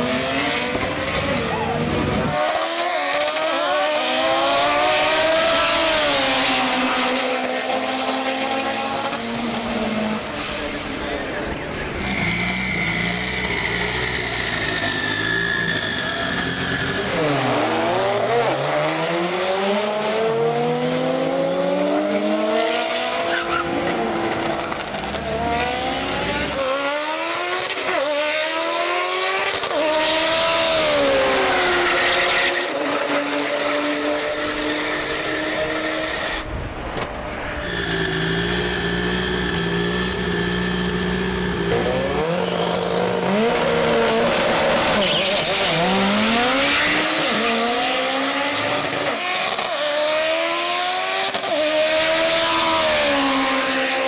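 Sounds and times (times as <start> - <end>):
car engine revving: 0.0 - 54.0
tire squeal: 11.8 - 18.7, 23.2 - 23.9, 37.3 - 47.6.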